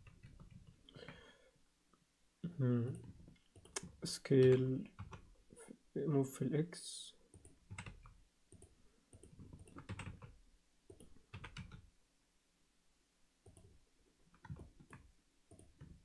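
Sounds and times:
computer keyboard clicking: 0:02.9 - 0:05.3, 0:07.4 - 0:11.8, 0:14.3 - 0:16.0.

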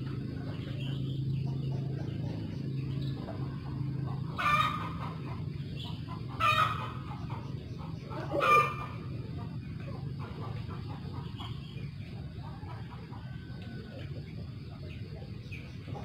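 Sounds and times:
steady low hum: 0:00.0 - 0:16.0
chicken squawking: 0:04.3 - 0:05.4, 0:06.2 - 0:07.3, 0:08.1 - 0:09.1.

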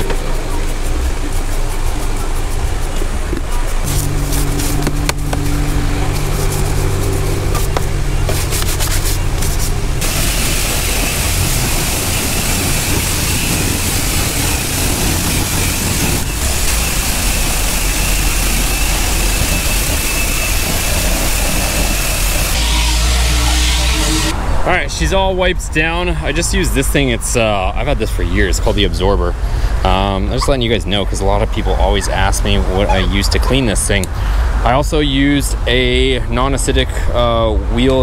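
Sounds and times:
high-pressure water wand spraying: 0:00.0 - 0:24.3
low steady hum: 0:00.0 - 0:37.6.

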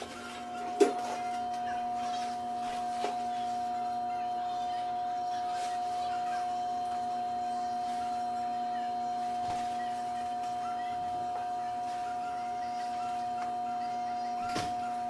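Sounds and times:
vibrating massager humming: 0:00.0 - 0:15.0.

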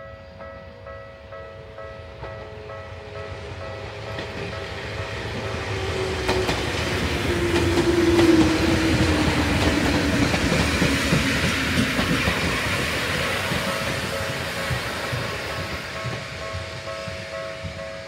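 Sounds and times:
train wheels clattering on rails: 0:02.1 - 0:18.0.

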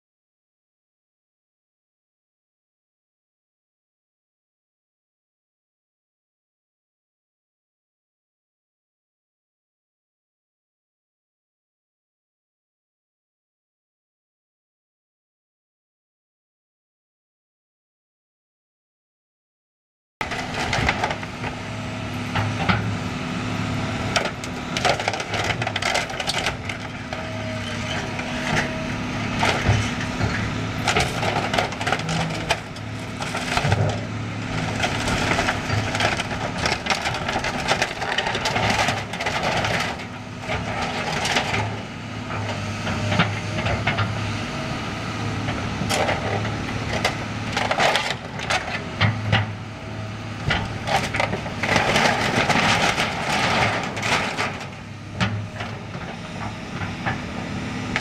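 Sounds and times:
metal roof cracking and crunching: 0:20.2 - 0:21.7, 0:24.1 - 0:41.8, 0:45.9 - 0:49.6, 0:50.5 - 0:55.7
diesel engine running: 0:20.2 - 0:58.0.

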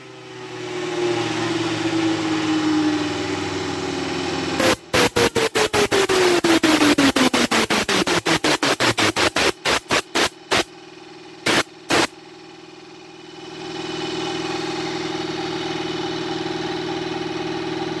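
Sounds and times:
wheel whine spinning down: 0:00.0 - 0:12.2.

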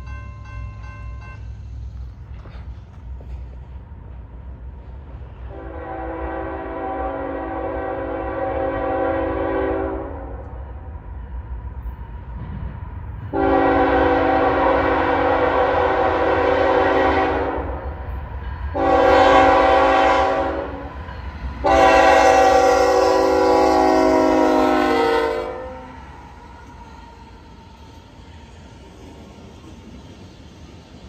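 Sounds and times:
locomotive engine and train rumble: 0:00.0 - 0:31.0
locomotive air horn blasts: 0:05.5 - 0:10.4, 0:13.3 - 0:17.8, 0:18.7 - 0:20.9, 0:21.6 - 0:26.0.

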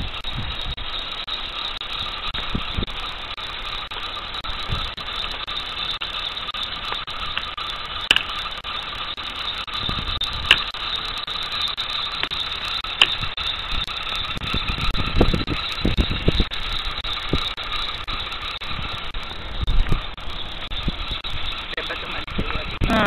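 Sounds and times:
car engine idling: 0:00.0 - 0:23.0
sharp clicks: 0:03.9 - 0:21.7.

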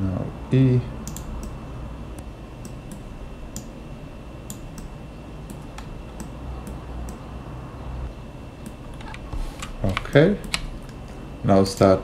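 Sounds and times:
computer keyboard and mouse clicks: 0:01.0 - 0:01.6, 0:08.6 - 0:11.0.

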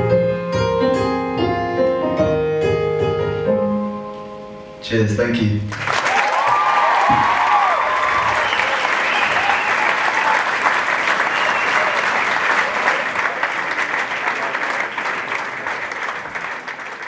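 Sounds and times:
audience clapping and cheering: 0:05.7 - 0:17.0.

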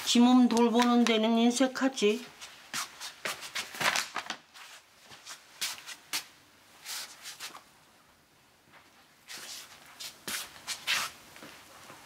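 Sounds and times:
person shuffling and rustling: 0:02.0 - 0:07.8, 0:08.6 - 0:12.0.

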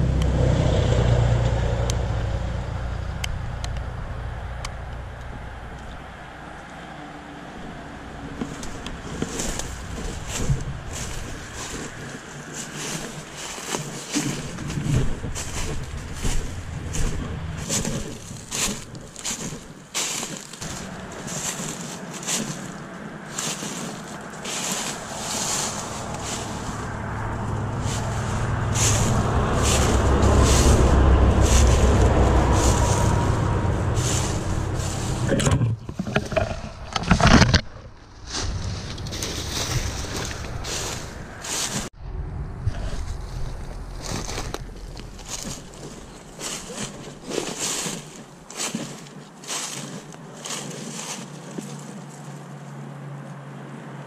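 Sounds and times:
wind rumble on microphone: 0:00.0 - 0:48.2
footsteps crunching dry leaves: 0:08.3 - 0:35.3, 0:37.6 - 0:42.0, 0:42.8 - 0:52.8.

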